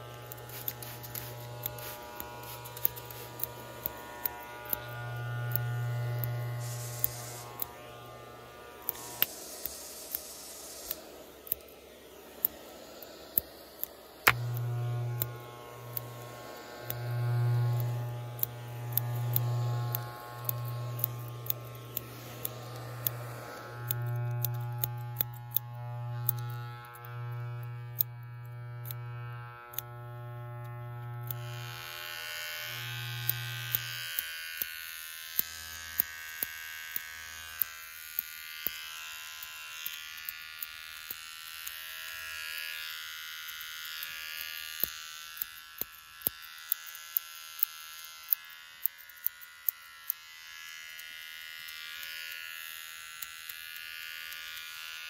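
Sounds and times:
steady airy hiss: 0.0 - 4.0, 6.6 - 7.8, 8.4 - 14.3
scissors snipping: 0.0 - 10.2, 13.4 - 28.1
electric hair clippers buzzing: 0.0 - 55.0.

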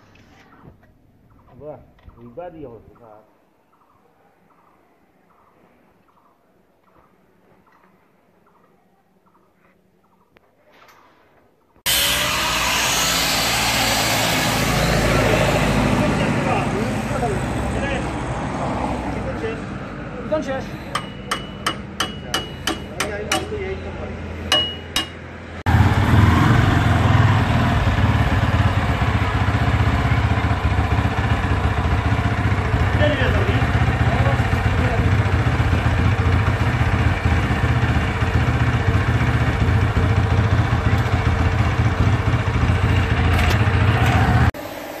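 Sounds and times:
hammer striking metal: 20.8 - 23.8, 24.5 - 25.4
quad bike engine idling: 25.7 - 44.5.

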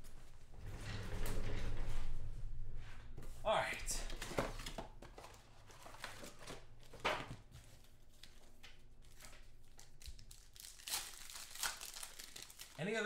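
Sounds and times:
cardboard box and packs rustling: 4.1 - 8.4.

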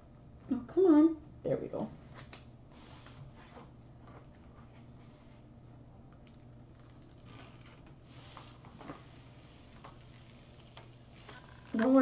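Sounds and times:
low steady hum: 0.0 - 12.0
plastic film rustling and crinkling: 6.2 - 12.0.

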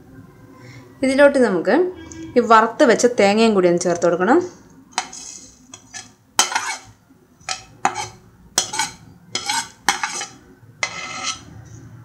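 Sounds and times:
plate clattering against metal pot: 5.8 - 6.9, 7.5 - 11.4.

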